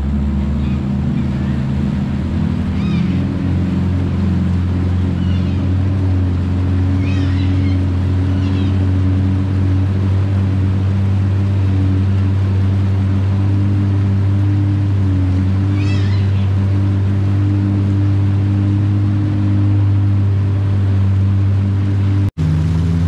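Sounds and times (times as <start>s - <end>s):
boat motor running: 0.0s - 23.0s
high squeaky calls: 0.5s - 1.8s, 2.7s - 3.4s, 5.0s - 6.0s, 6.8s - 9.1s, 15.6s - 16.6s.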